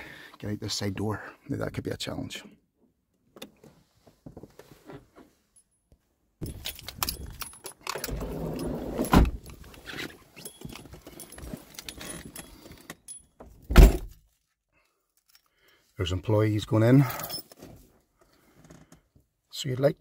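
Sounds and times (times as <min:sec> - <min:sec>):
rustling and clattering handling noises: 0:06.4 - 0:16.0, 0:17.0 - 0:19.1.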